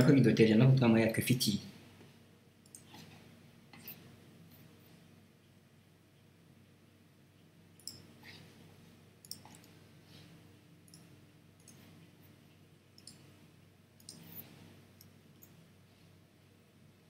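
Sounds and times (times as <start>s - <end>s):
low room hum: 0.0s - 17.0s
computer mouse clicks: 2.6s - 3.1s, 7.8s - 8.1s, 9.2s - 9.8s, 10.9s - 11.9s, 12.9s - 13.3s, 14.0s - 15.6s.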